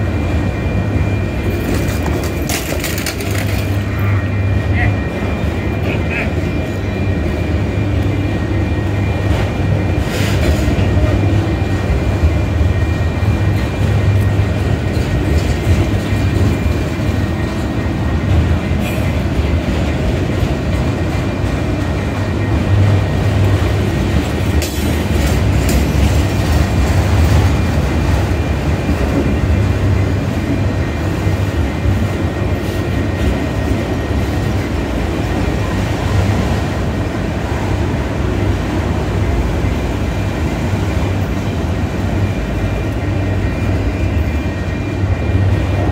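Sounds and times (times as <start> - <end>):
freight train wheels rumbling: 0.0 - 45.9
rhythmic clickety-clack: 9.2 - 36.6.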